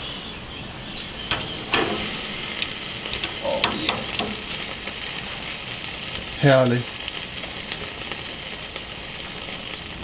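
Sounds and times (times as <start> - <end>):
steak sizzling on a grill: 0.3 - 10.0.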